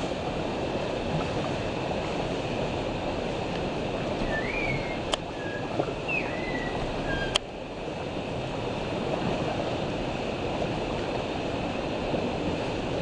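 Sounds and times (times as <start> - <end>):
stream rushing over stones: 0.0 - 13.0
short whistles: 4.2 - 7.4.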